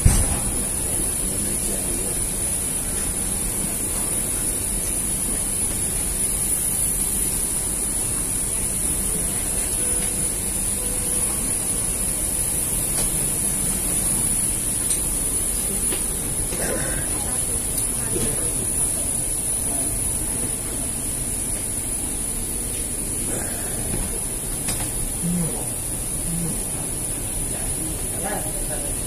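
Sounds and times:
ventilation hiss: 0.0s - 29.0s.

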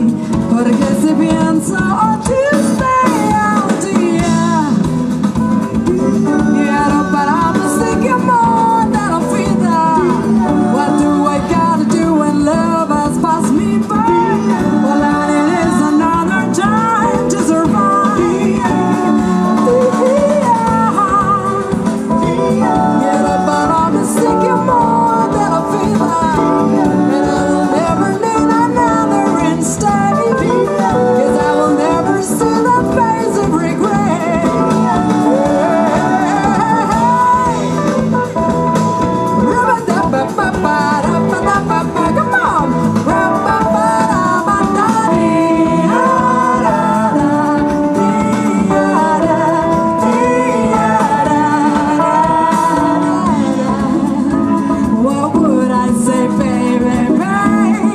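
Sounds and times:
lead vocal singing: 0.0s - 57.9s
live band playing jazzy pop: 0.0s - 57.9s.

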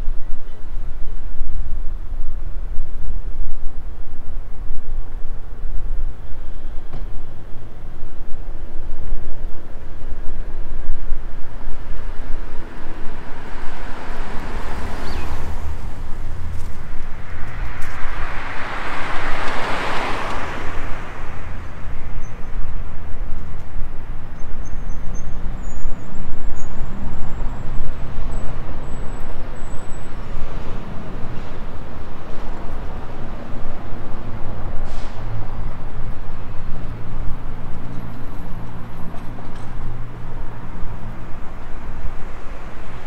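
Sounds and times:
low traffic rumble: 0.0s - 43.0s
vehicle passing close: 11.8s - 22.8s.

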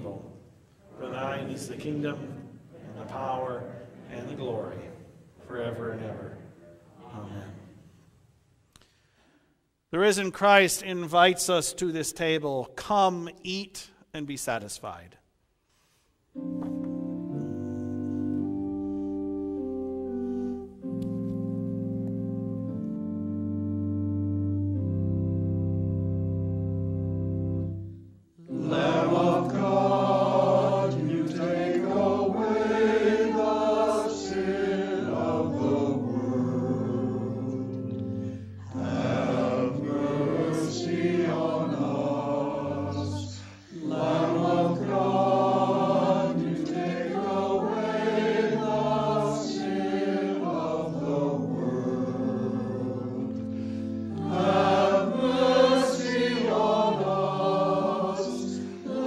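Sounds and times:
choir singing: 0.0s - 7.8s, 28.4s - 59.0s
held keyboard chord: 16.4s - 43.1s, 43.8s - 59.0s.

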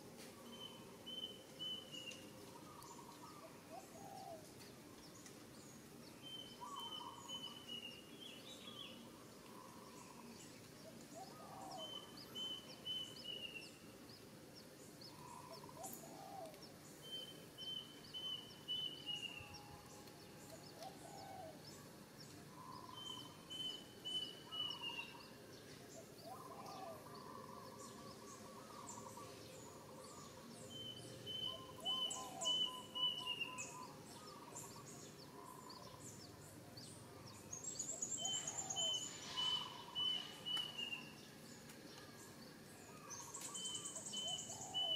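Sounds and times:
lower bird calls: 0.4s - 4.5s, 6.1s - 13.8s, 15.1s - 25.4s, 26.0s - 36.2s, 37.7s - 41.3s, 41.9s - 44.9s
faint high chirps: 37.4s - 44.9s.

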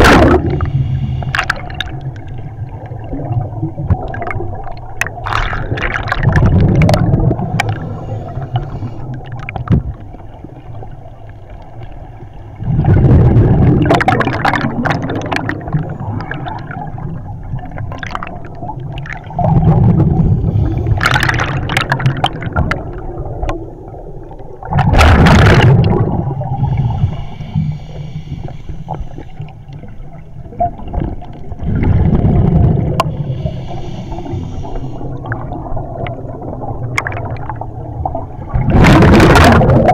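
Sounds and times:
underwater exhaled bubbles gurgling: 0.0s - 39.9s
faint regulator hiss: 0.5s - 2.2s, 7.5s - 9.4s, 26.3s - 30.4s, 33.0s - 35.5s.

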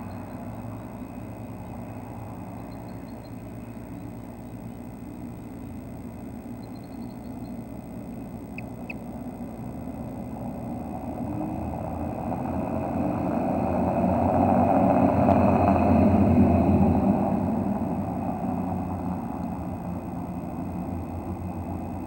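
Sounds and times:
passing vehicle engine rumble: 9.7s - 22.0s.

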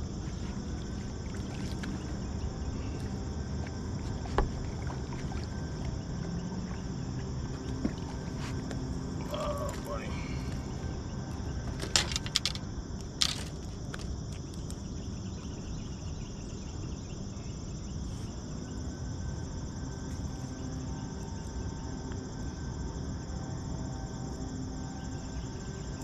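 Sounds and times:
insects chirping: 0.0s - 26.0s
low constant rumble: 0.0s - 26.0s.

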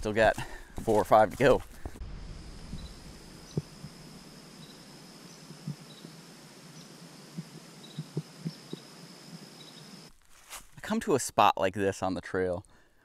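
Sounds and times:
soft low thumps: 0.3s - 4.2s, 5.4s - 6.2s, 7.3s - 9.5s
crickets trilling: 0.9s - 10.1s
faint chirps: 2.3s - 10.1s.

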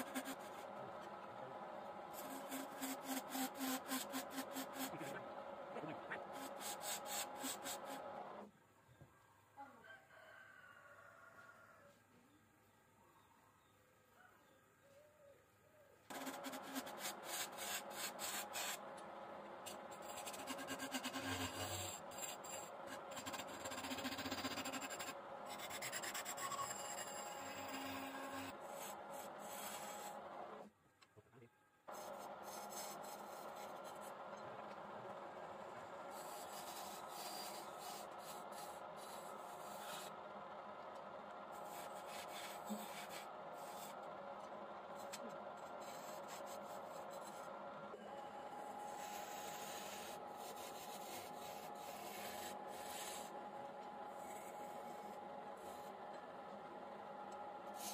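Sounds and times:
tool scraping spinning wood: 0.0s - 1.2s, 2.0s - 8.2s, 16.1s - 30.7s, 31.9s - 40.3s, 40.9s - 56.3s, 57.7s - 57.9s
wood lathe humming: 0.0s - 8.4s, 16.1s - 30.6s, 31.9s - 57.9s.

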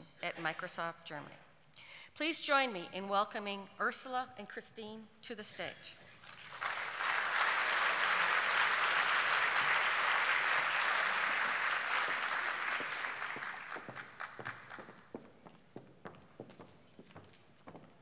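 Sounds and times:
audience applause: 6.3s - 15.0s.

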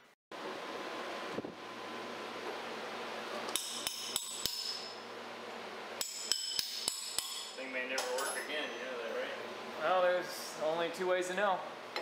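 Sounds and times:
wrench striking metal hub: 3.5s - 4.9s, 6.0s - 8.5s.

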